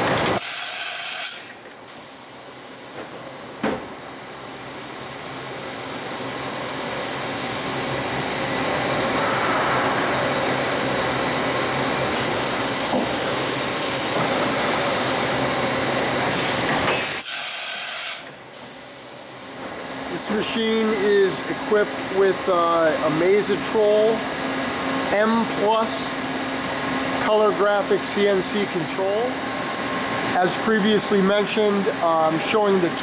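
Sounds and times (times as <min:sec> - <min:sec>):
machining center running: 0:02.3 - 0:16.9.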